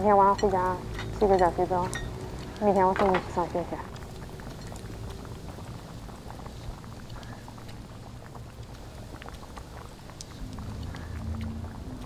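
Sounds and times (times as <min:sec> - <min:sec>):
low background rumble: 0:00.0 - 0:12.0
chopsticks and tableware clicking: 0:00.4 - 0:03.4.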